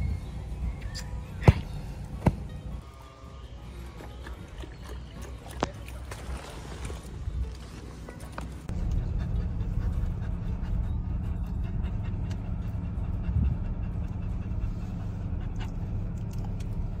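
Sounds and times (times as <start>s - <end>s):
car cabin low rumble: 5.6s - 17.0s
puppy panting: 8.6s - 17.0s.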